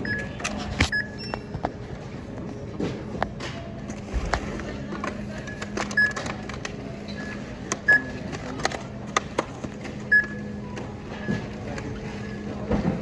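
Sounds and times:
barcode scanner beeps: 0.0 - 1.5, 5.4 - 8.3, 10.0 - 11.5.

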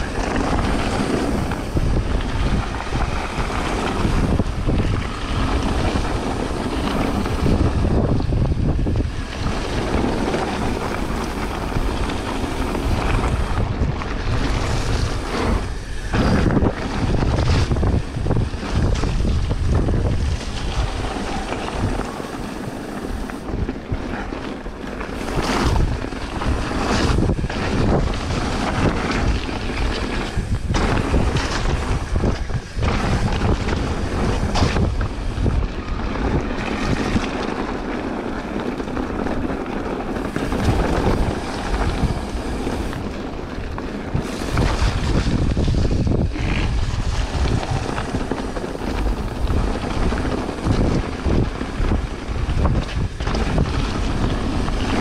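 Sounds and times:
low rumble of bike tyres: 0.0 - 55.0
wind rushing over microphone: 0.0 - 55.0
bike knocking over rough ground: 23.2 - 55.0.

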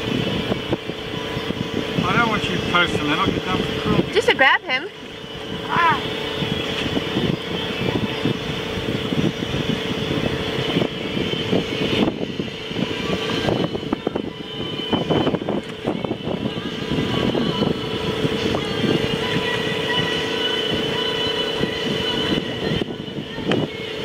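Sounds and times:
fluttering wind: 0.0 - 24.0
steady mechanical hum: 0.0 - 24.0.

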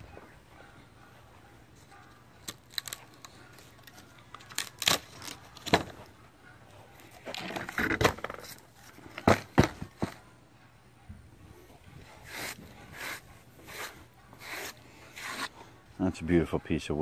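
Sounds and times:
wood scraping: 12.0 - 15.6.

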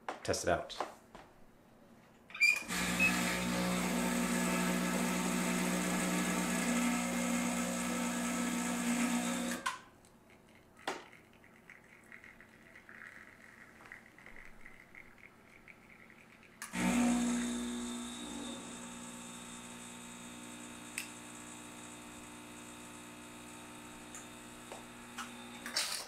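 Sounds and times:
espresso machine pump humming: 2.6 - 9.6, 15.7 - 25.9.

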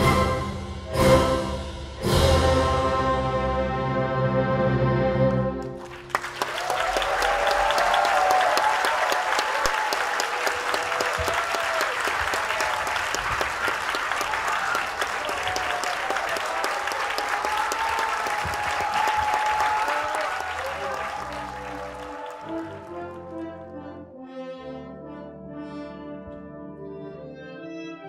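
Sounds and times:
audience applauding and cheering: 5.6 - 23.7.

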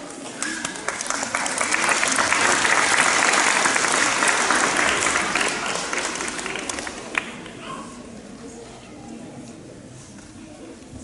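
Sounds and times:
audience applauding: 0.2 - 7.6.

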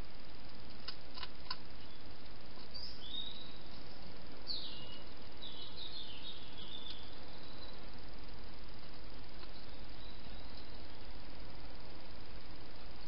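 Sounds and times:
steady hiss: 0.0 - 13.0
sharp clicks: 0.5 - 1.6
songbird singing gliding phrases: 1.6 - 13.0.

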